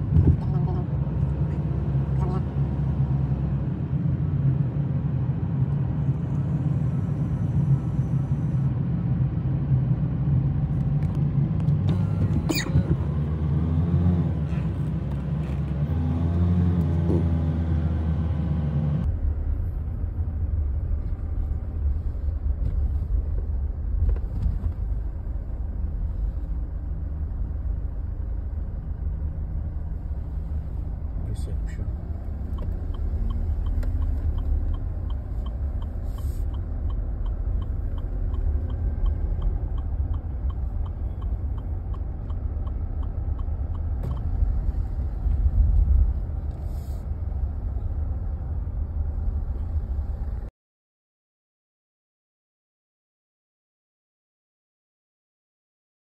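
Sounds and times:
car engine and tyres rumbling: 0.0 - 50.5
road hiss: 36.0 - 36.6, 46.6 - 47.2.

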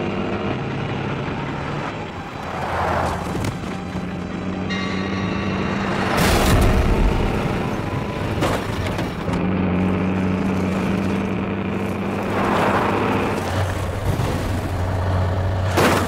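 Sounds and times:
diesel truck engine running hard: 0.0 - 16.0
loud bang: 5.2 - 8.1.

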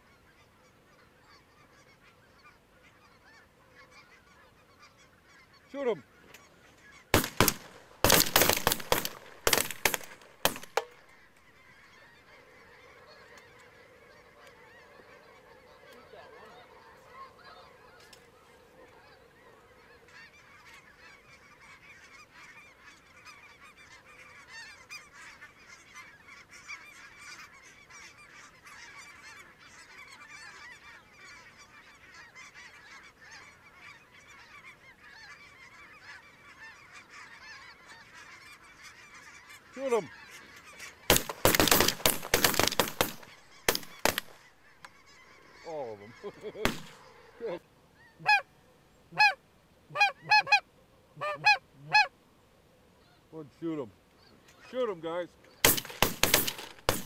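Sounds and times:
geese calling: 0.0 - 52.2, 52.9 - 57.0
shotgun blasts: 7.1 - 11.0, 41.1 - 44.4, 46.6 - 47.2, 55.6 - 57.0.

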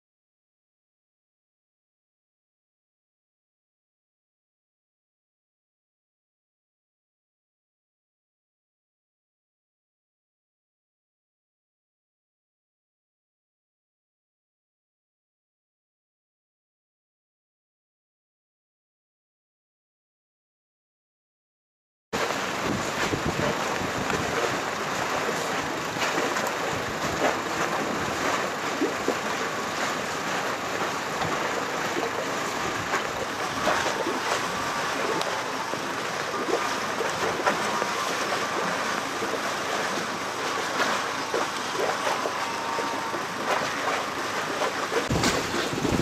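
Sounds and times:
wind buffeting microphone: 22.2 - 29.4, 44.6 - 46.0
water slapping against boat hulls: 22.2 - 46.0
faint steady whine: 30.4 - 46.0.

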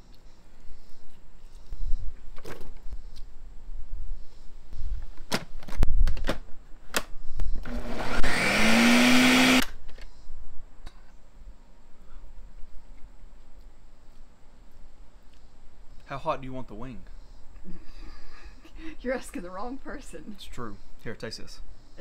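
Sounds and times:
blender motor chopping: 7.6 - 9.7.

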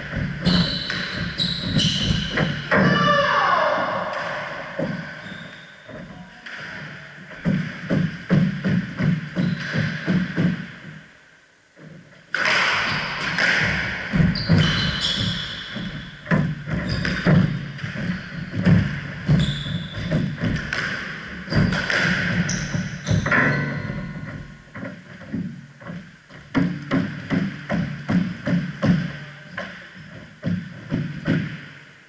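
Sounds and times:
squash ball thudding: 0.0 - 3.0, 4.0 - 10.9, 12.3 - 31.8
shoe squeaks: 0.3 - 3.4, 4.8 - 6.2, 9.3 - 10.1, 14.2 - 20.7, 21.4 - 24.5
footsteps on wooden floor: 7.3 - 11.0, 14.1 - 29.1.

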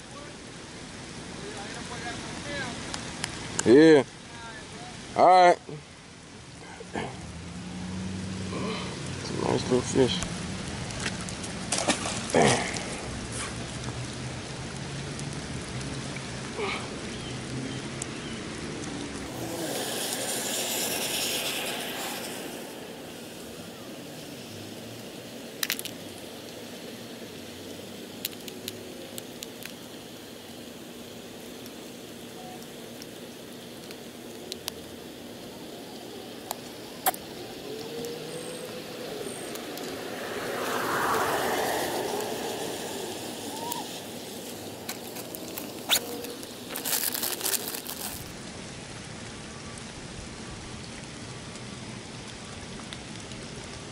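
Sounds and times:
outdoor hiss: 0.0 - 53.9
fishing tackle clicking and rattling: 25.6 - 26.0.

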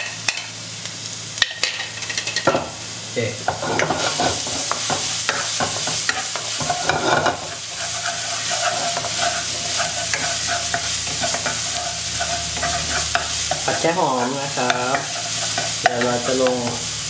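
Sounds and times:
garlic sizzling in oil: 0.0 - 17.0
spatula scraping and tapping pan: 3.5 - 16.8.

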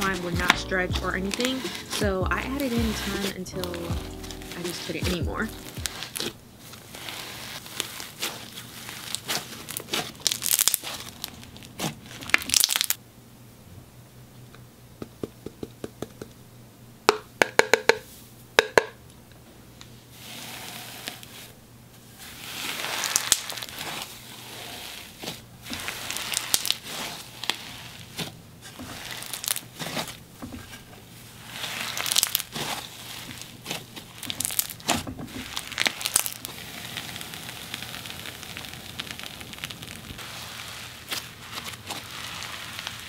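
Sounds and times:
crunchy slime squeezed by hand: 5.6 - 13.0, 22.3 - 30.2, 31.5 - 43.0.

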